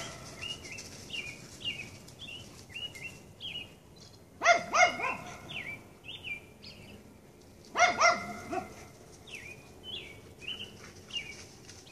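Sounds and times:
dog barking: 4.4s - 5.5s, 7.7s - 8.9s.

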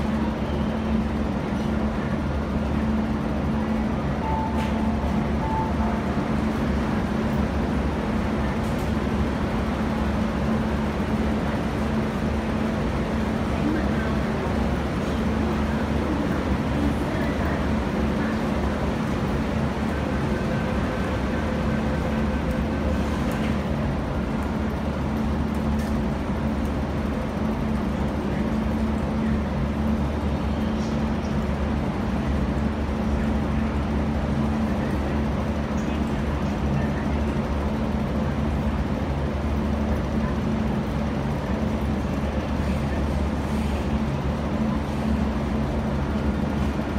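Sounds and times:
footsteps of passengers: 0.0s - 46.9s
low hum of metro station: 0.0s - 46.9s
faint voices: 12.9s - 23.8s.

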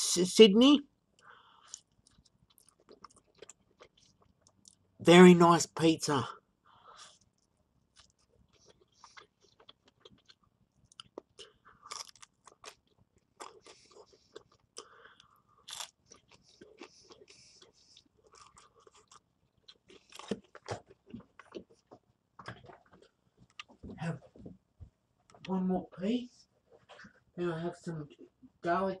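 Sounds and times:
person chewing crunchy food: 1.2s - 5.0s, 6.9s - 23.8s.

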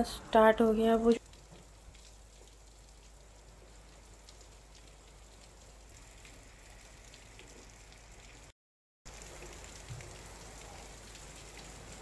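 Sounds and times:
light ticks of raindrops: 0.9s - 8.5s, 9.1s - 12.0s
heavy rain falling: 9.1s - 12.0s.

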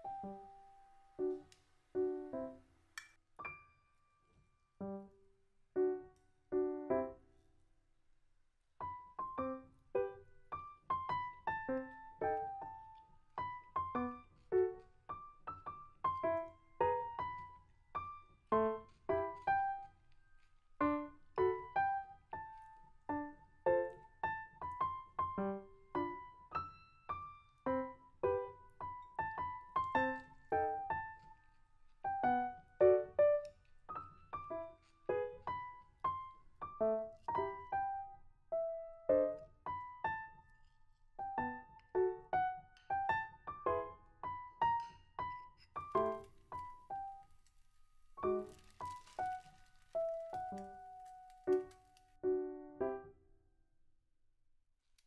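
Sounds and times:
light piano background music: 0.0s - 2.7s, 3.4s - 5.2s, 5.8s - 7.3s, 8.8s - 47.4s, 48.1s - 53.1s.

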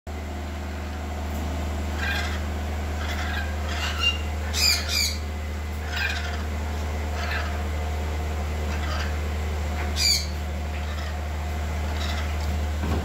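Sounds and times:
lorikeets squawking: 1.9s - 7.8s, 8.6s - 12.6s.

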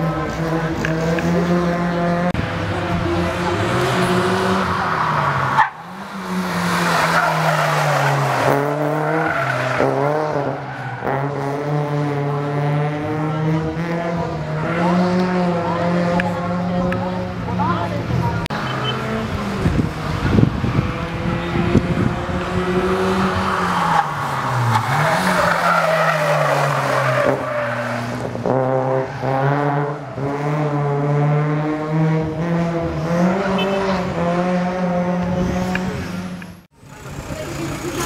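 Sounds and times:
car engine revving hard: 0.0s - 17.7s, 18.3s - 36.4s
tyres squealing on asphalt: 3.5s - 11.5s, 22.6s - 30.5s.

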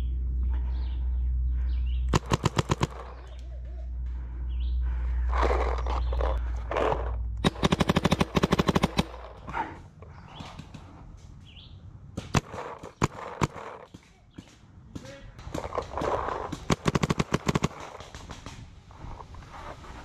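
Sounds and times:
paintball marker rapid firing: 2.1s - 3.4s, 7.4s - 9.5s, 12.2s - 18.8s.

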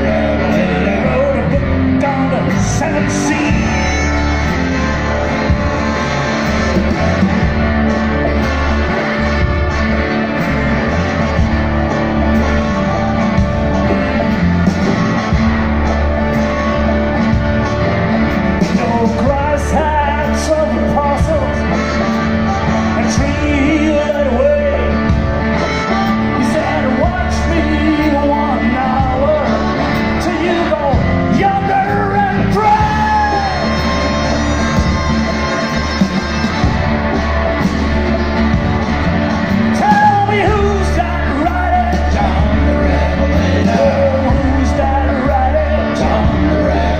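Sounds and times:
person singing: 0.0s - 7.4s, 18.5s - 38.8s, 39.4s - 46.9s
blues band playing: 0.0s - 46.9s
harmonica: 0.0s - 46.9s.

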